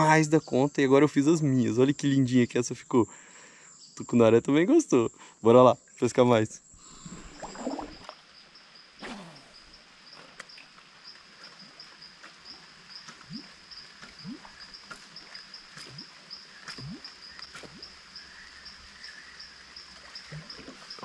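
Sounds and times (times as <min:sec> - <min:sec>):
insect chirping: 0:00.0 - 0:21.0
lure blooping on water: 0:06.8 - 0:08.2, 0:09.0 - 0:09.8, 0:13.1 - 0:18.0.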